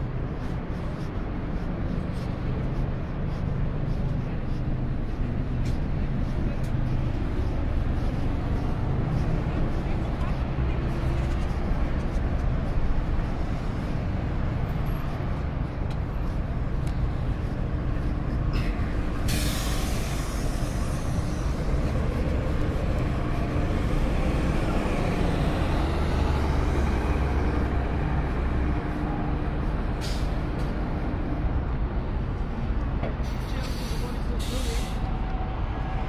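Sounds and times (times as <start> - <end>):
large vehicle engine rumbling: 0.0 - 36.0
air brakes hissing: 18.6 - 22.4, 29.8 - 30.7, 33.2 - 35.2.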